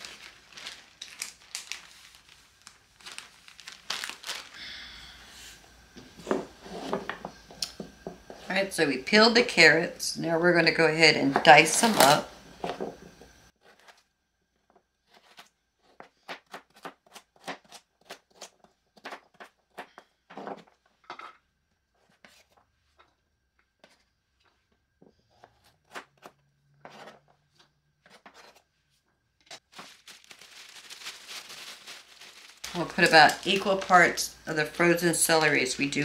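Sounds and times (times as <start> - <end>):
plastic bag crinkling: 0.0 - 4.7, 29.6 - 34.5
knife chopping on plastic board: 15.9 - 20.0.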